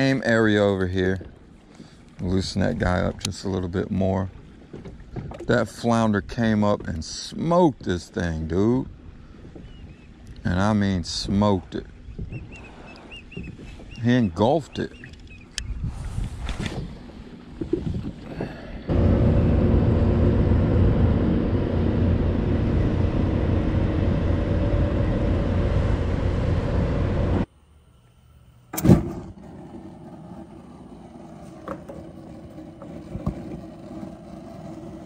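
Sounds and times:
wind and water noise: 0.0 - 27.5
boat engine running: 18.8 - 27.5
gas grill burners: 18.9 - 27.5.

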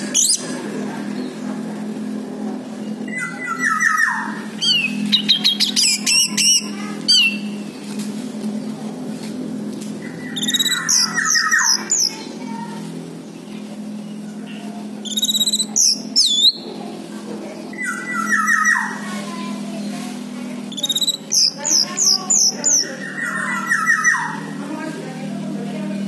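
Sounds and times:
steady low hum: 0.0 - 26.0
bird whistling song: 0.1 - 0.5, 3.0 - 7.6, 10.2 - 12.2, 15.0 - 16.6, 17.8 - 19.0, 20.7 - 24.5.

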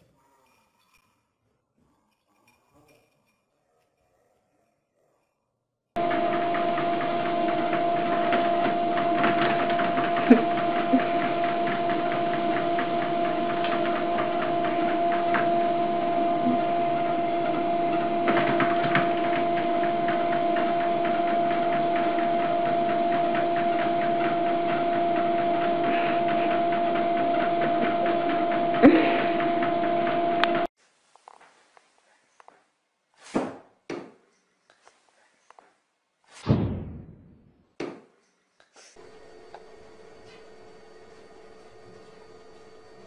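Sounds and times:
treadmill motor whine: 6.0 - 30.7, 39.0 - 43.0.

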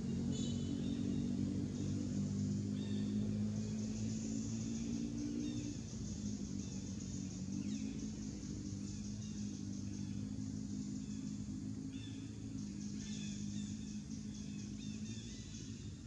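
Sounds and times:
steady low hum: 0.0 - 16.0
bird chirps: 0.2 - 16.0
steady high hiss: 1.4 - 16.0.

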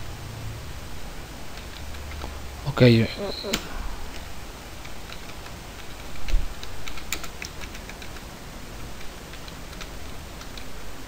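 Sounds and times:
keyboard key clicks: 3.5 - 8.3.

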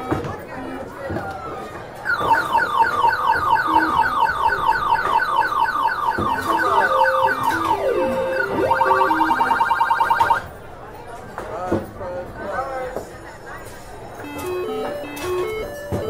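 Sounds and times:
arcade machine beeps: 2.1 - 10.5, 14.2 - 16.0
low electronic melody: 6.2 - 9.6.

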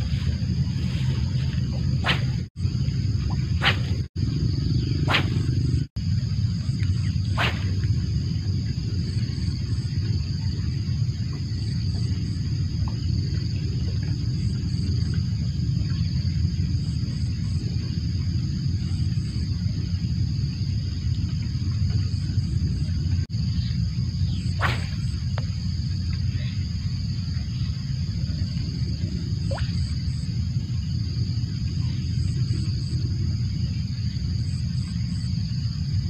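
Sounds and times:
fishing line hiss: 0.0 - 2.5, 3.2 - 4.1, 5.0 - 5.9, 6.6 - 7.9, 24.3 - 26.6
fishing rod swish: 0.0 - 2.5, 3.6 - 4.1, 5.0 - 5.6, 7.3 - 7.8, 24.6 - 25.1
low rumble: 0.0 - 36.0.

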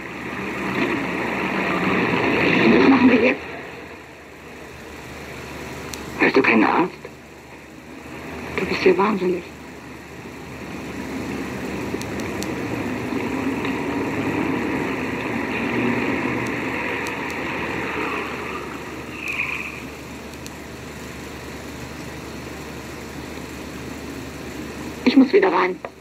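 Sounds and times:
vehicle engine passing: 0.0 - 5.7, 7.8 - 20.3.

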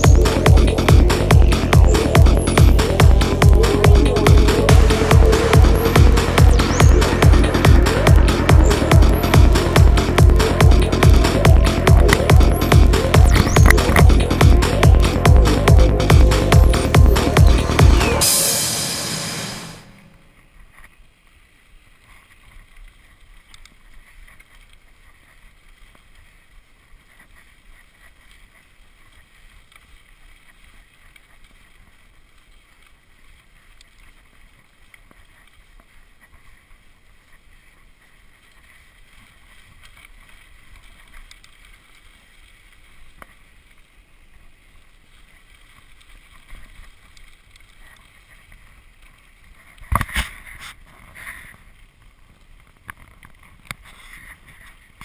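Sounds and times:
bike tyres rolling on dirt: 0.0 - 17.5, 20.2 - 55.0
wind: 0.0 - 55.0
faint clicks: 22.0 - 55.0.

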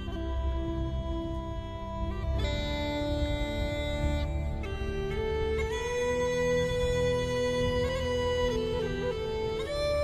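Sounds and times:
instrumental background music: 0.0 - 10.0.

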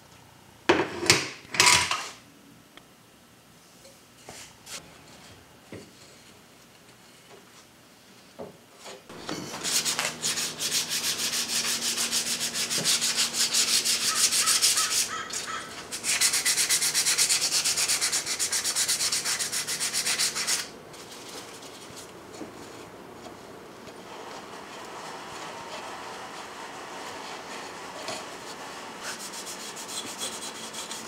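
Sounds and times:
sandpaper sanding wood: 9.1 - 22.0, 24.1 - 31.0.

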